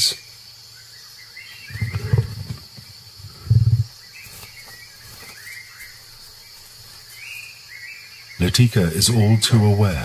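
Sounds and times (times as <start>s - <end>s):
birds chirping: 0.0s - 10.0s
high insect drone: 0.0s - 10.0s
deep pulsing rumble: 1.7s - 3.9s.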